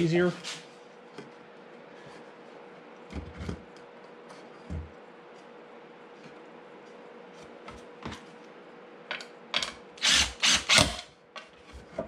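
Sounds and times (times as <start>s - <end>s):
drill driving screw into wood: 10.0s - 11.1s.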